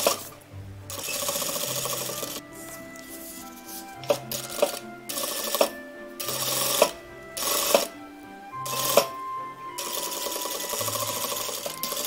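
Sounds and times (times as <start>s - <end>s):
background music: 0.0s - 12.0s
sewing machine stitching: 0.9s - 2.4s.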